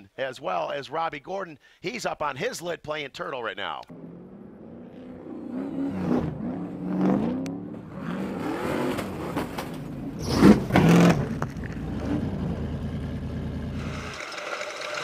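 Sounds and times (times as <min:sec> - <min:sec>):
race truck engines revving: 0:03.9 - 0:13.8.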